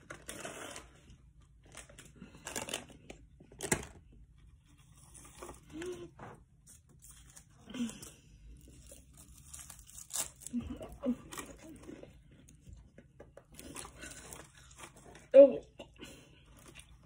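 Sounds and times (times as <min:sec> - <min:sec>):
chip bag crinkling: 0:06.7 - 0:12.1
seaweed sheets tearing: 0:08.6 - 0:11.0.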